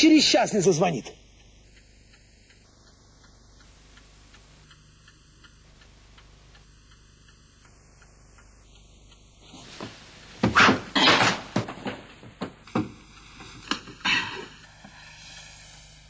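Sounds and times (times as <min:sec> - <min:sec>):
clock ticking: 0:00.0 - 0:09.5, 0:12.1 - 0:16.0.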